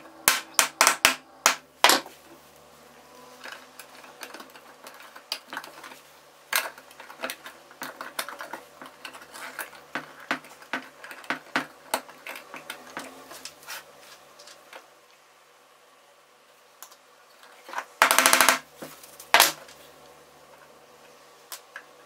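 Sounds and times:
wooden panels clicking and tapping: 3.5 - 13.6.

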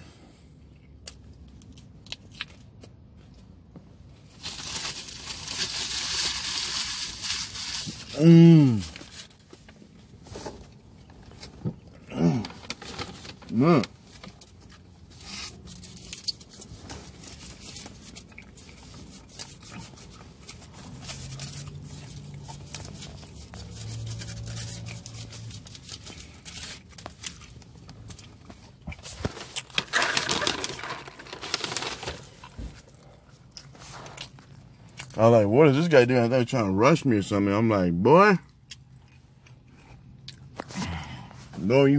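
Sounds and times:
paper wrappers crinkling: 4.3 - 9.8, 12.4 - 33.0
person chewing: 17.7 - 23.8, 32.8 - 35.2, 38.4 - 41.2.

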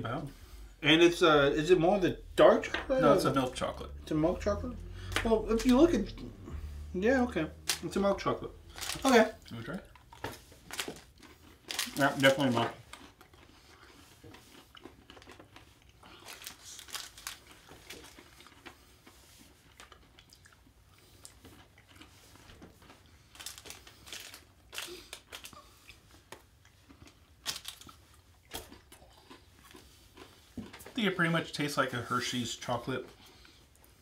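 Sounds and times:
wrapper crinkling: 8.6 - 13.1, 15.1 - 18.6, 23.3 - 25.6, 27.4 - 28.0
person chewing: 8.6 - 31.0.

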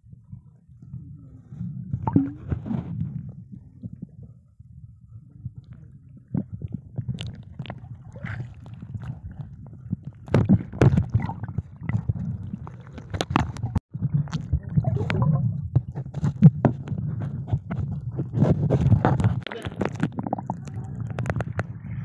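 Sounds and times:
underwater rumble of moving water: 0.0 - 22.0
underwater clicks and crackles: 1.9 - 4.3, 5.3 - 22.0.

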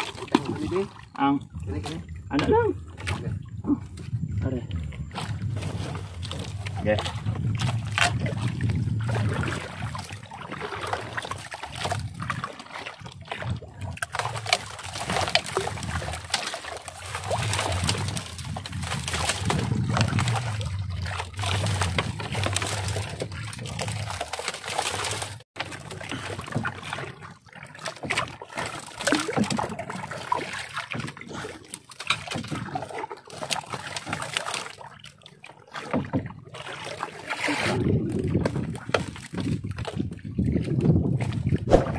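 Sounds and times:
water sloshing around boat hull: 0.0 - 41.9
low rumble: 0.4 - 10.4, 17.2 - 24.4, 41.5 - 41.9.

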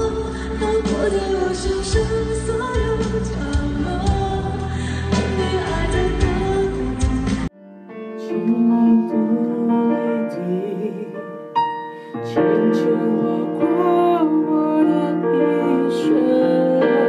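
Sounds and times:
person singing: 0.0 - 17.0
piano playing slow song: 0.0 - 17.0.

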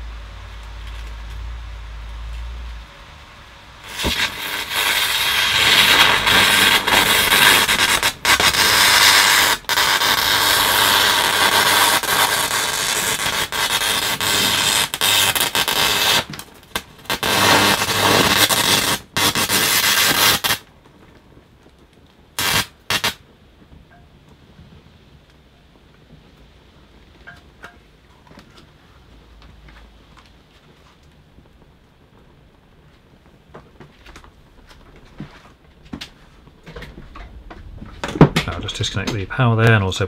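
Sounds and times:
electrical arcing hiss: 0.0 - 20.7, 22.3 - 23.3, 35.7 - 40.0.

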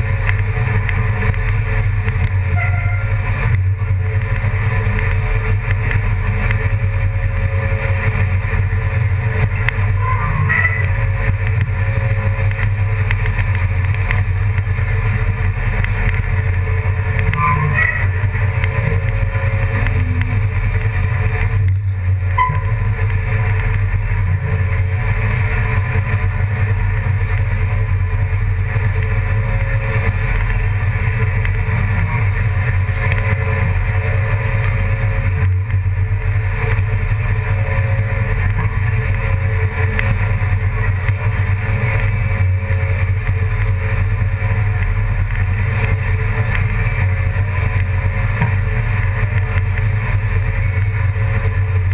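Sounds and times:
engine droning: 0.0 - 51.9.

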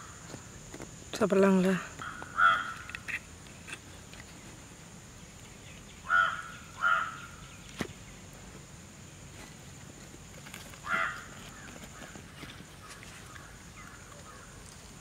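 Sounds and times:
crow cawing: 2.0 - 3.1, 6.0 - 7.4, 10.8 - 12.2, 12.8 - 14.6.

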